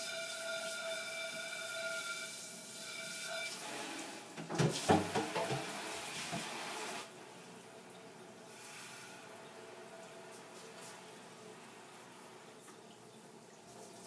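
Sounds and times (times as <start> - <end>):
dishes clattering in basin: 4.4 - 5.8
tap running into sink: 4.4 - 6.6.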